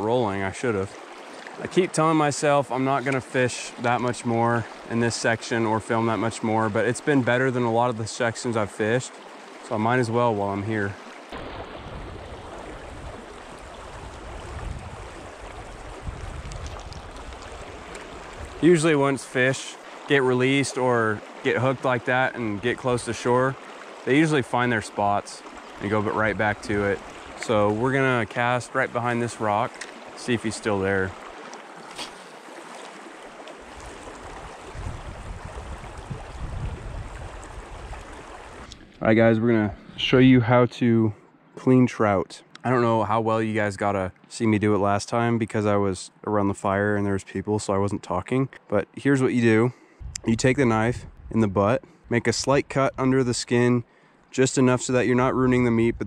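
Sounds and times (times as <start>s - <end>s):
river water running: 0.0s - 40.6s
low uneven rumble: 9.9s - 31.4s.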